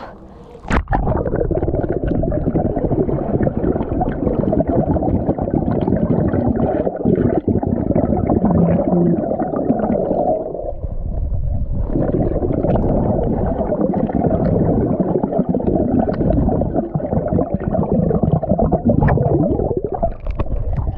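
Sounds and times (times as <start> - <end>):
underwater rumble and gurgling: 0.0 - 20.9
bubbles crackling against camera: 0.5 - 20.9.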